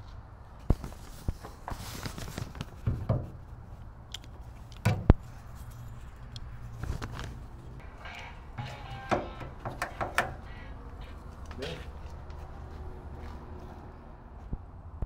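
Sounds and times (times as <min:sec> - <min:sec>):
metal tailgate handle knocking: 0:04.8 - 0:05.1, 0:08.7 - 0:10.4.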